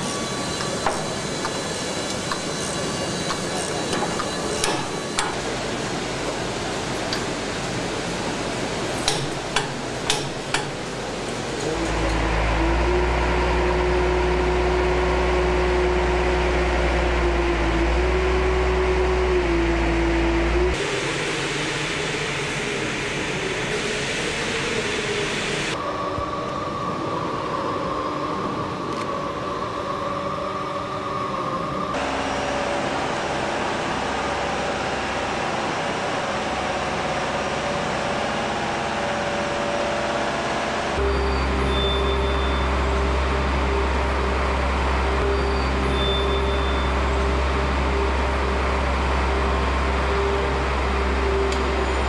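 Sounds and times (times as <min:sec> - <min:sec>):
jet engines rumbling and whining: 0:00.0 - 0:52.0.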